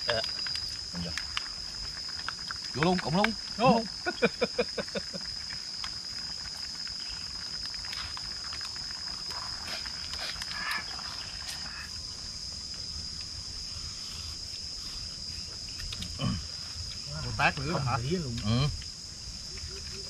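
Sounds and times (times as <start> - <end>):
insects droning: 0.0 - 20.0
voices: 2.8 - 5.2, 17.0 - 18.8.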